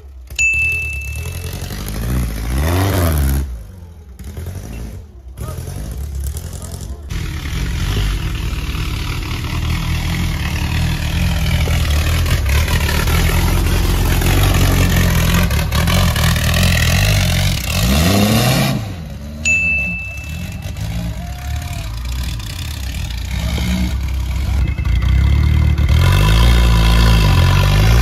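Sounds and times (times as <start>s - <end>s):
buggy engine revving hard: 1.1s - 28.0s
brief high whistle: 19.5s - 20.6s.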